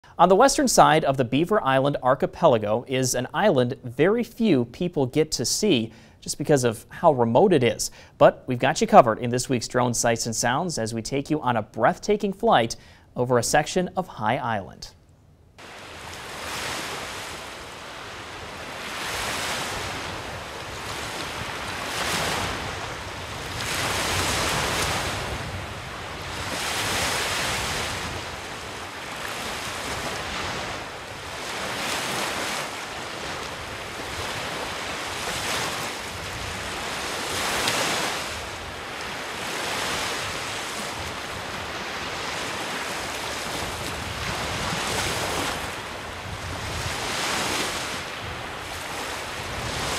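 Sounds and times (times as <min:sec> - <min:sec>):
waves washing onto shore: 0:15.6 - 0:49.9.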